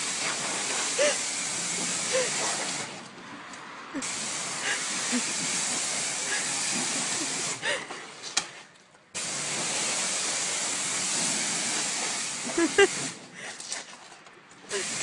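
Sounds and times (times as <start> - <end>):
pressure washer spraying water: 0.0 - 3.1, 4.0 - 7.8, 9.2 - 13.4, 14.7 - 15.0.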